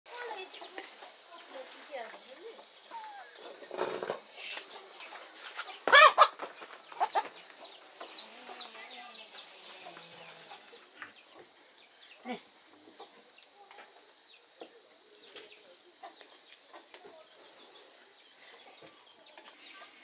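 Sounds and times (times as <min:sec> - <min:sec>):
chickens clucking: 0:00.2 - 0:20.0.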